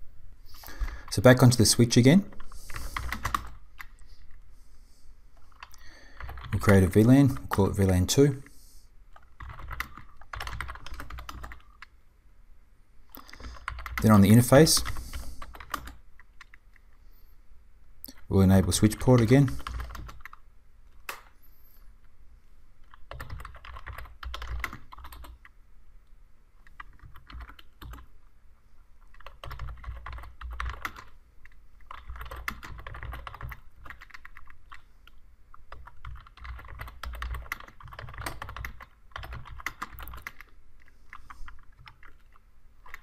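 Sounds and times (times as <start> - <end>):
typing on computer keyboard: 2.3 - 4.0, 5.5 - 7.6, 9.2 - 11.9, 13.2 - 14.2, 14.8 - 16.6, 18.8 - 20.4, 22.8 - 25.6, 26.6 - 28.1, 29.1 - 34.8, 35.6 - 43.0.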